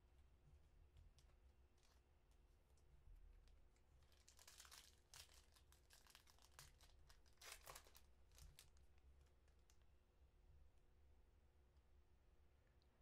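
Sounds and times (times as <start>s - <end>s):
foil wrapper crinkling and tearing: 4.0s - 9.7s.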